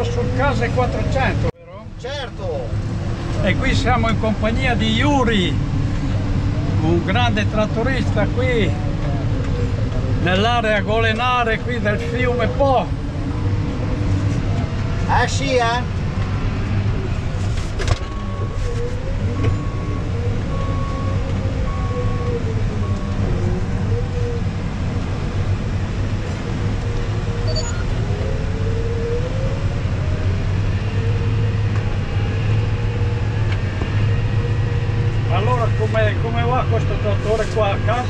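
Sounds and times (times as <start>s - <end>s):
short electronic beeps: 27.4s - 28.0s.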